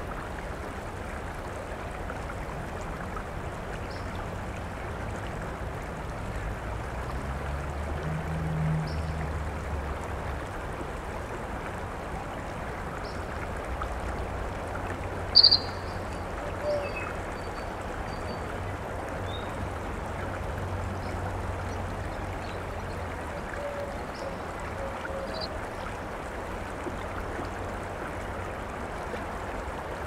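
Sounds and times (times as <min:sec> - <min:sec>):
creek water over rocks: 0:00.0 - 0:30.0
sharp high-pitched chirp: 0:15.4 - 0:15.8.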